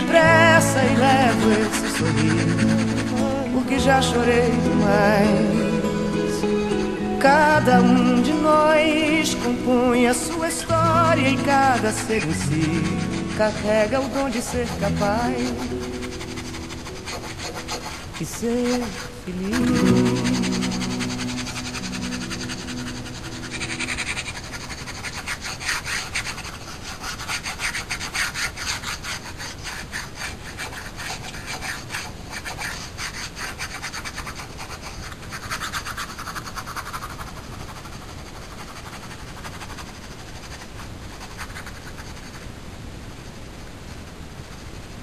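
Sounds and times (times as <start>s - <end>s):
pen scratching on paper: 0.0s - 42.5s.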